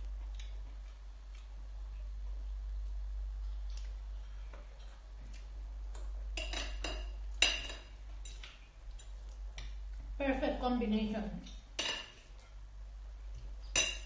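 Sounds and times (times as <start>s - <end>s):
faint eating clicks: 0.1s - 2.1s, 2.8s - 6.5s, 8.1s - 10.1s
cutlery clinking on glass bowl: 6.4s - 8.5s, 13.7s - 14.0s.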